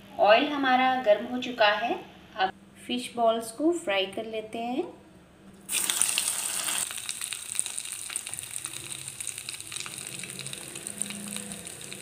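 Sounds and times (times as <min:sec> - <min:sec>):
food deep-frying in hot oil: 0:05.7 - 0:12.0.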